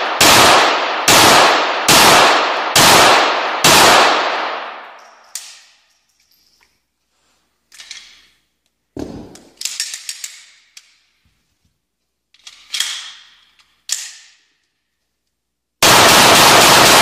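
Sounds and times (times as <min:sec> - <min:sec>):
pistol clicks and clacks: 0:05.0 - 0:05.9, 0:07.7 - 0:11.0, 0:12.3 - 0:15.4.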